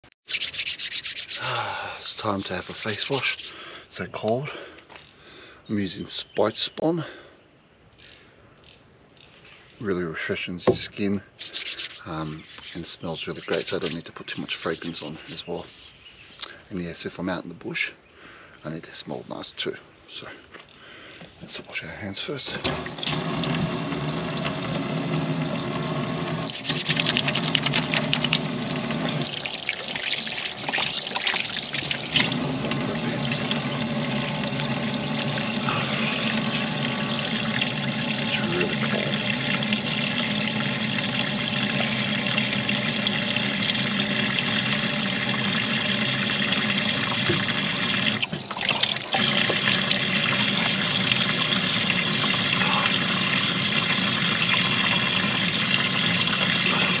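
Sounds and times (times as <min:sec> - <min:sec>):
tap water splashing over hands: 0:26.6 - 0:40.0, 0:47.1 - 0:50.8.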